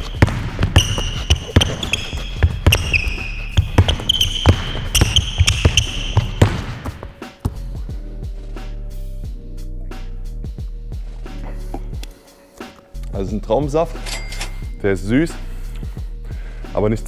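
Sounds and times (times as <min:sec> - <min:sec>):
basketball dribbling on hardwood floor: 0:00.0 - 0:07.8
sneakers squeaking on floor: 0:00.0 - 0:07.8
background music: 0:00.0 - 0:17.0.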